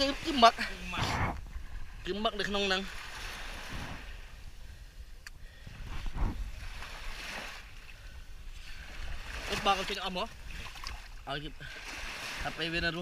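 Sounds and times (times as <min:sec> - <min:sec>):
wind buffeting microphone: 0:00.0 - 0:02.4, 0:03.1 - 0:09.4
water washing at shore: 0:00.0 - 0:04.5, 0:05.7 - 0:13.0.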